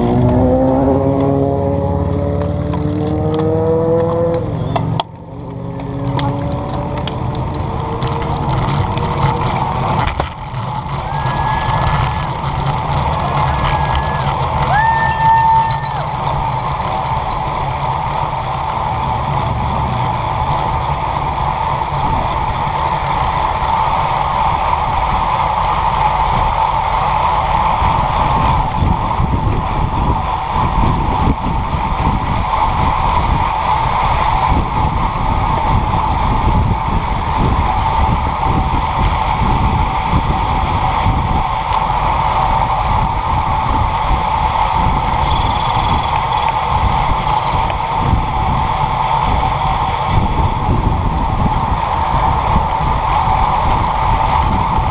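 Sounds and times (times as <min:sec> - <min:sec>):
constant hum: 0:00.0 - 0:54.9
road vibration rumble: 0:00.0 - 0:54.9
tyre and wind noise: 0:00.0 - 0:54.9.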